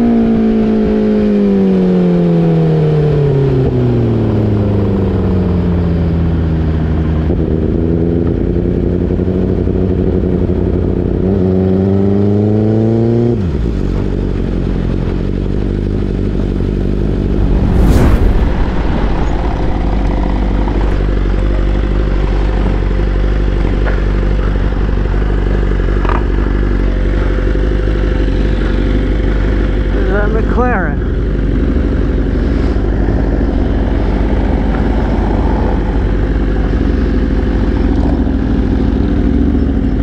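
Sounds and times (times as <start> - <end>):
motorcycle engine revving and idling: 0.0 - 17.4, 19.8 - 40.0
loud brief rushing sound: 17.1 - 22.2.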